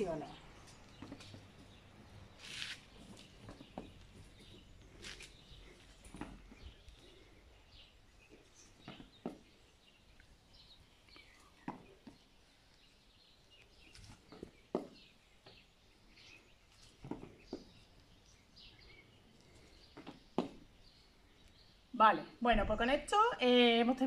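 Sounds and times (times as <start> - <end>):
faint birds chirping: 0.0 - 24.0
feet landing with soft thuds: 19.9 - 20.7.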